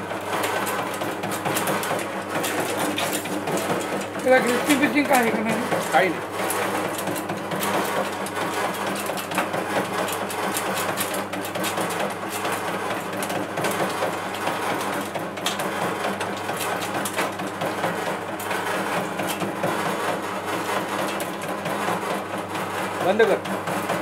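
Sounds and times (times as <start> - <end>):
fruit machine humming and clattering: 0.0 - 24.0.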